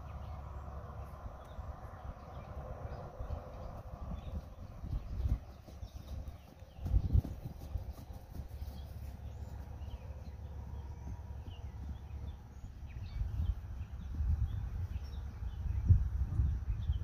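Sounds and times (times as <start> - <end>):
low rumble: 0.0 - 7.6
horse hoofbeats on grass: 2.3 - 16.5.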